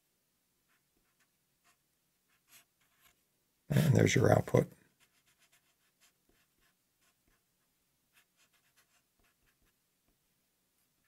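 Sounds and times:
marker scratching on paper: 0.7 - 3.2, 5.0 - 9.8.

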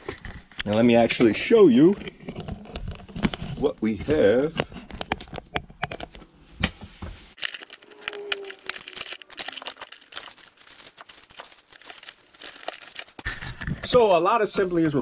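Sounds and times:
packaging crinkling and rustling: 7.4 - 14.0.

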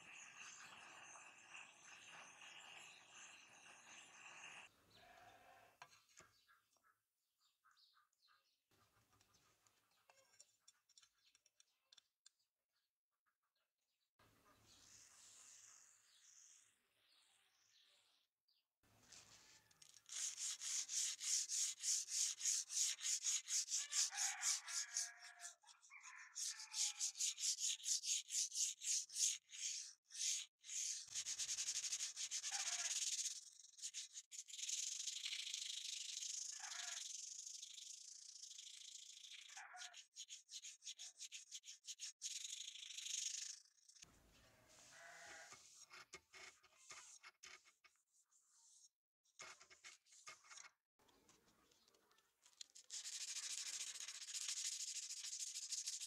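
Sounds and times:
sandpaper rubbing on steel blade: 0.0 - 4.7, 19.3 - 44.0, 52.6 - 56.0
cloth wiping blade: 19.3 - 25.3, 26.4 - 36.2.

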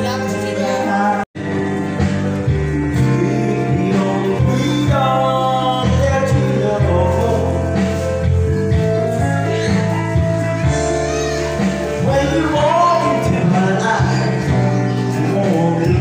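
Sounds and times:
man singing into a microphone: 0.0 - 1.6, 2.5 - 8.4, 11.8 - 16.0
backing track with guitar: 0.0 - 16.0.

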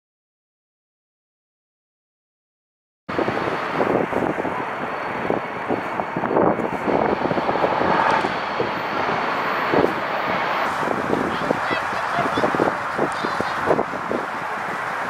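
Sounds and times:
faint high whine: 3.1 - 15.0
rushing outdoor noise: 3.1 - 15.0.

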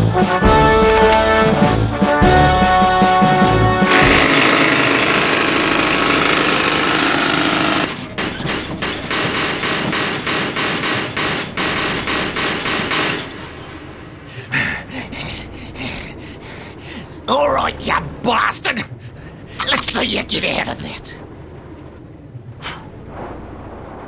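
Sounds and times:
pneumatic rivet gun: 3.9 - 7.8.

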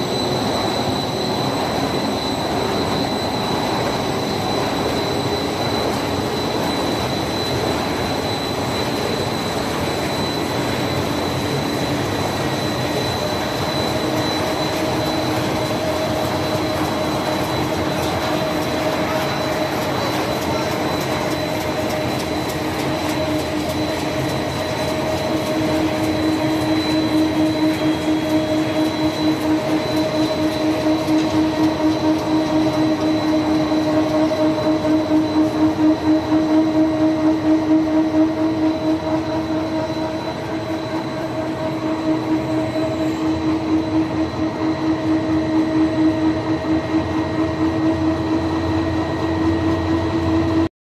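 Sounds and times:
machinery hum with high whine: 0.0 - 50.7.

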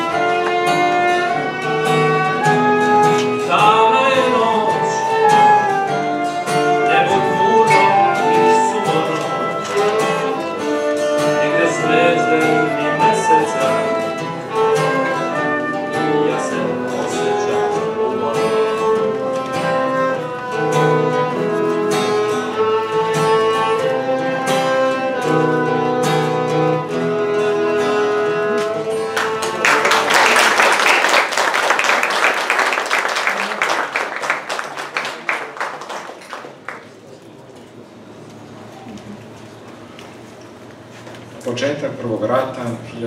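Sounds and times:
violin flute and guitar melody: 0.0 - 30.5
audience applause: 29.1 - 37.4.

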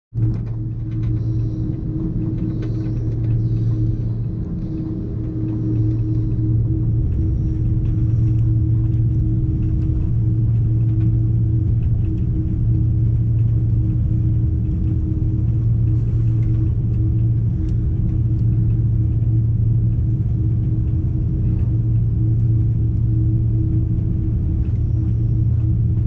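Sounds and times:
aircraft cabin engine drone: 0.2 - 26.0
steady hum tone: 0.2 - 26.0.

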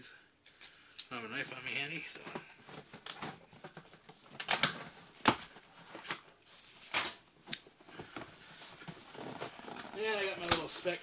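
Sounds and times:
packing tape slitting: 4.3 - 5.5.

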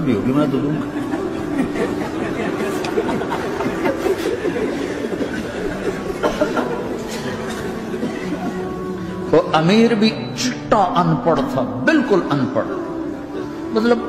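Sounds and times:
crowd of men laughing: 0.7 - 8.9.

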